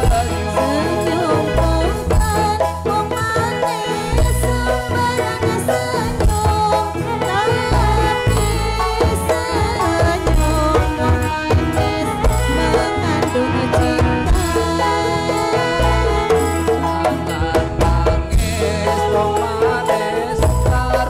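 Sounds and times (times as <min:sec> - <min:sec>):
drums beating: 0:00.0 - 0:21.0
gliding melody line: 0:06.7 - 0:21.0.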